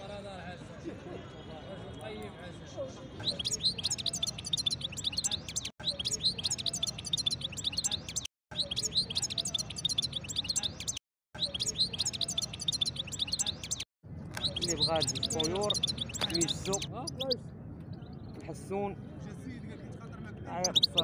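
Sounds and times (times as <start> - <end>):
finch twittering song: 3.2 - 13.8, 14.4 - 18.4, 20.6 - 21.0.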